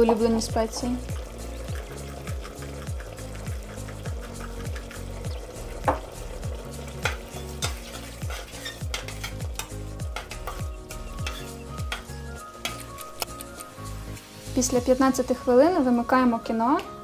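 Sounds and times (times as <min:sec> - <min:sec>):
background music with low beat: 0:00.0 - 0:17.0
spoon scraping metal pot: 0:07.0 - 0:13.0.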